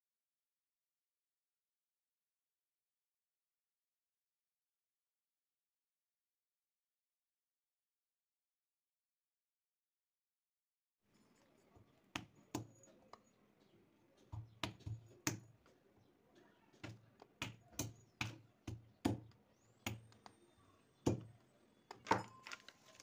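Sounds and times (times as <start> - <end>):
pestle cracking olives: 14.2 - 15.9, 16.7 - 20.4.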